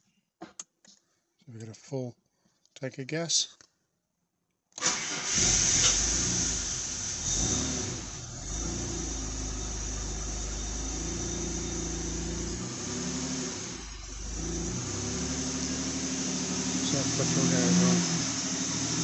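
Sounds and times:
car engine idling: 5.0 - 19.0.

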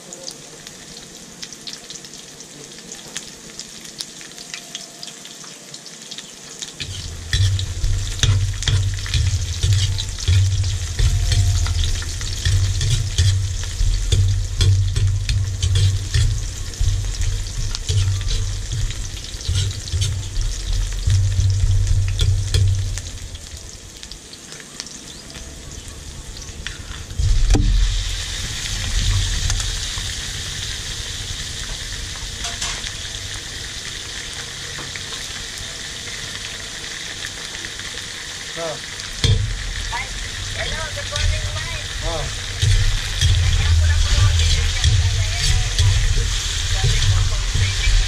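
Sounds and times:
onions sizzling in oil: 0.0 - 48.0
metal spatula scraping a wok: 6.8 - 23.3, 32.4 - 32.9, 39.2 - 48.0
loud low rumble: 6.8 - 24.0, 26.0 - 32.4, 39.3 - 48.0.

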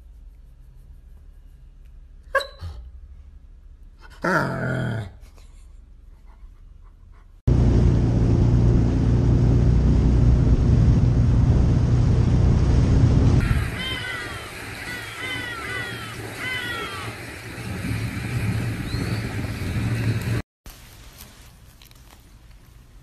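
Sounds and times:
jet ski engine running: 7.5 - 20.4
water rushing: 7.5 - 20.4
birds chirping: 13.4 - 17.9, 18.6 - 20.4.

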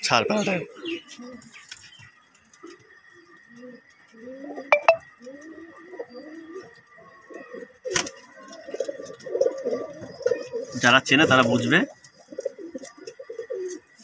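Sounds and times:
pigeons cooing: 0.0 - 14.0.

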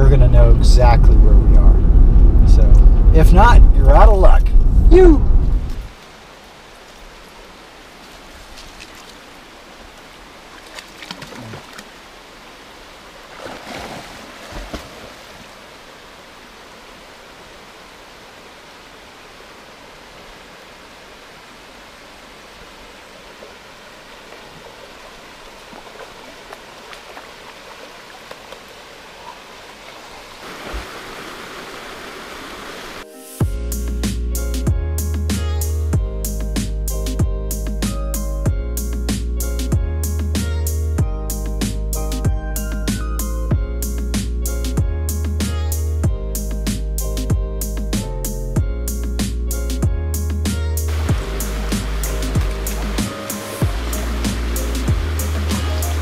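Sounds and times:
creek running over rocks: 5.8 - 33.1, 50.9 - 56.0.

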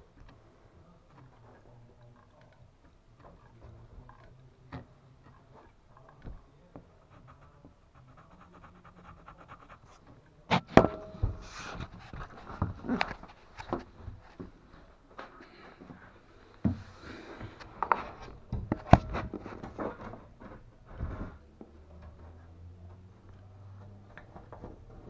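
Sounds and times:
pencil scratching on wood: 6.9 - 10.7.

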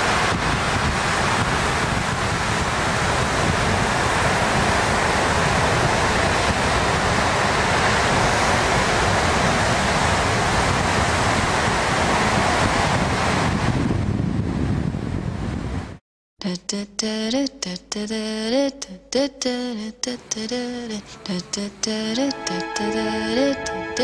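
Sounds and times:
ocean surf breaking: 0.0 - 14.2, 20.3 - 24.0
wind on microphone: 0.0 - 16.0.

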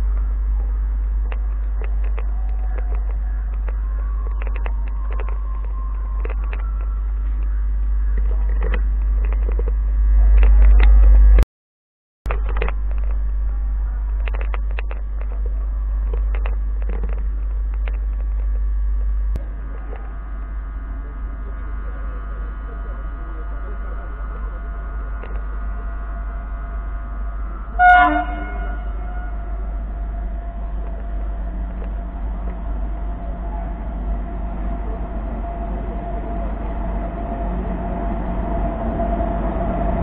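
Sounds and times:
electrical whine: 0.0 - 11.4, 12.3 - 40.0
train rumble with knocks: 0.0 - 11.4, 12.3 - 40.0
train horn toot: 27.7 - 30.8.

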